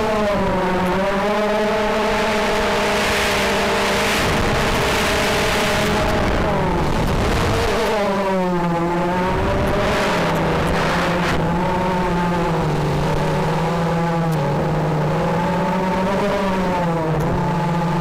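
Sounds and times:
drone motors whining: 0:00.0 - 0:18.0
wind noise rush: 0:01.9 - 0:13.7.

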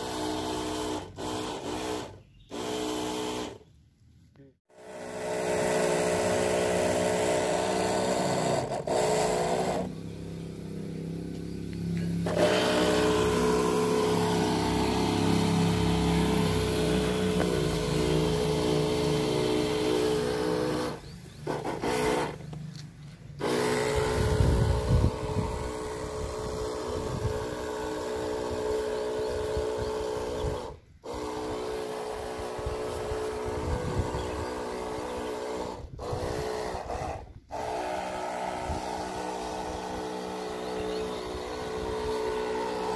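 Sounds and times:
motorized sprayer humming: 0:00.0 - 0:03.7, 0:04.7 - 0:42.9.

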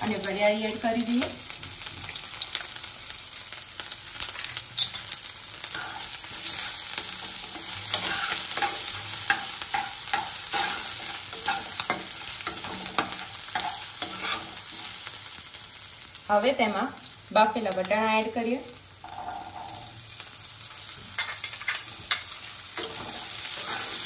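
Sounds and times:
hot oil sizzling: 0:00.0 - 0:24.0
metal spatula scraping pan: 0:07.5 - 0:14.9, 0:22.8 - 0:24.0.

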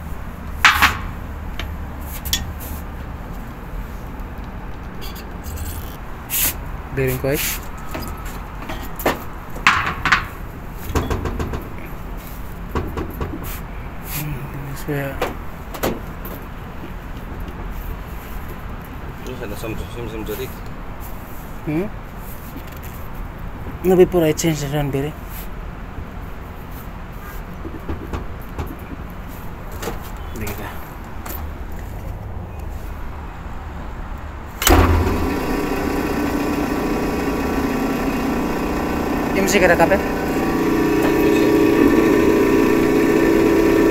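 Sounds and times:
exhaust fan motor humming: 0:34.6 - 0:43.9.

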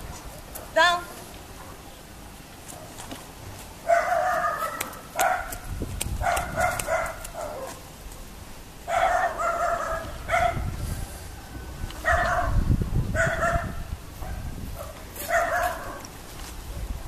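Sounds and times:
dog barking: 0:03.8 - 0:07.8, 0:08.9 - 0:10.7, 0:12.0 - 0:16.0.

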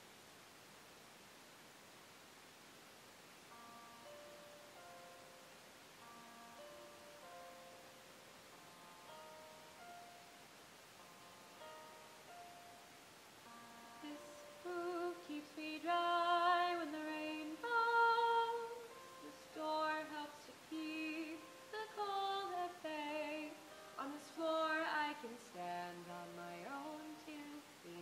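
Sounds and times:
soft instrumental backing: 0:03.5 - 0:28.0
woman singing a slow ballad: 0:14.0 - 0:28.0.

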